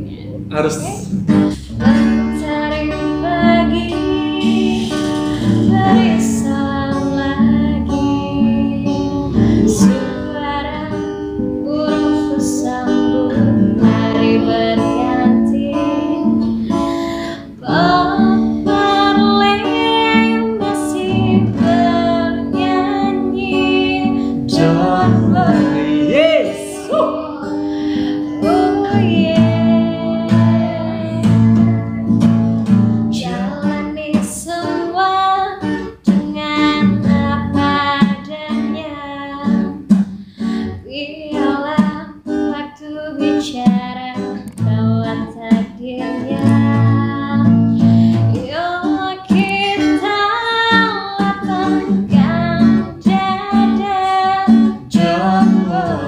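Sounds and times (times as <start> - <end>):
strummed acoustic guitar: 0.0 - 56.0
woman singing: 1.5 - 32.4, 33.1 - 56.0
man singing: 17.6 - 18.1, 24.5 - 27.4, 54.8 - 56.0.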